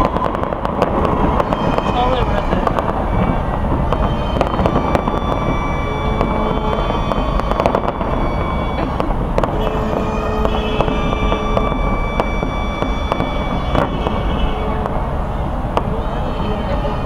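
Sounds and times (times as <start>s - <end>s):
fireworks bangs and crackling: 0.0s - 17.0s
low rumble: 0.0s - 17.0s.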